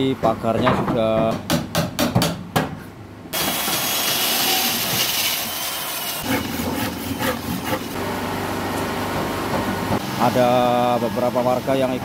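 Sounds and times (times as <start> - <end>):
handsaw cutting wood: 3.4 - 8.0.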